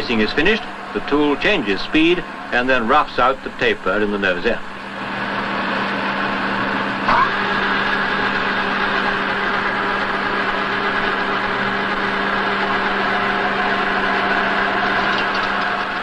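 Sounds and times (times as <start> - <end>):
machine humming: 0.0 - 16.0
tool squealing: 7.1 - 7.5.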